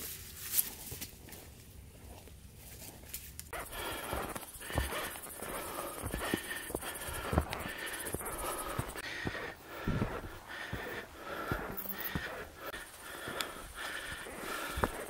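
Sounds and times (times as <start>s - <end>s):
footsteps on dirt trail: 0.4s - 15.0s
person panting: 3.5s - 15.0s.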